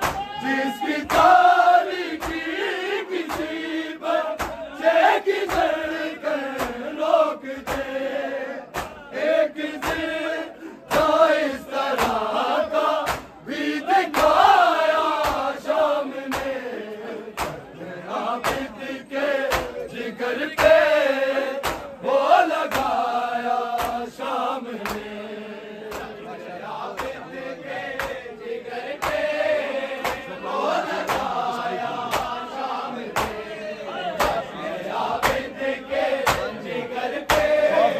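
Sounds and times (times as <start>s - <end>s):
hands slapping chests: 0.0s - 7.0s, 7.6s - 8.0s, 8.7s - 16.6s, 17.3s - 17.7s, 18.4s - 18.8s, 19.4s - 19.8s, 20.6s - 20.9s, 21.5s - 22.0s, 22.6s - 23.1s, 23.8s - 24.2s, 24.8s - 25.2s, 25.9s - 26.2s, 26.9s - 32.5s, 33.1s - 33.5s, 34.2s - 34.5s, 35.2s - 37.7s
men chanting in unison: 0.0s - 37.9s.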